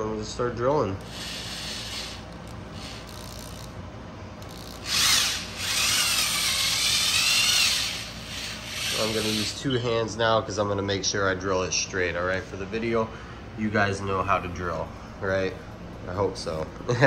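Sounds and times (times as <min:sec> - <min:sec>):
drill whining cutting metal: 0:01.0 - 0:03.7, 0:04.4 - 0:09.6.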